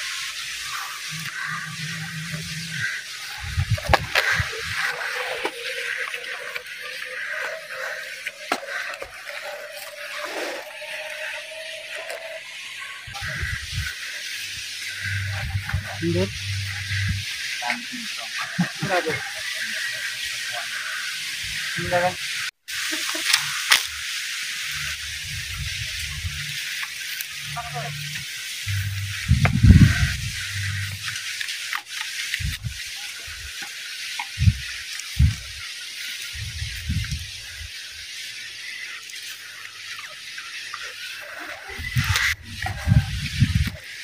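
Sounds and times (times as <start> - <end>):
outdoor hiss: 0.0 - 44.0
low rumble: 28.7 - 31.0.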